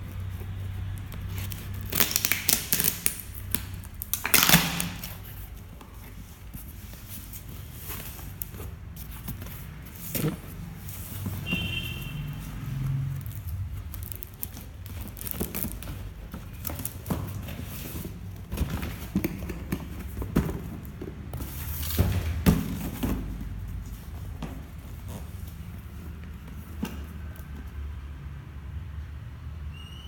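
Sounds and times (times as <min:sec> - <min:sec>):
brief high squeak: 0:29.7 - 0:30.0.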